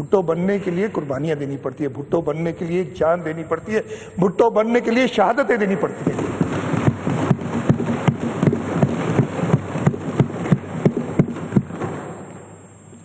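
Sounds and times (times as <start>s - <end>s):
people thumping desks: 5.8s - 12.5s.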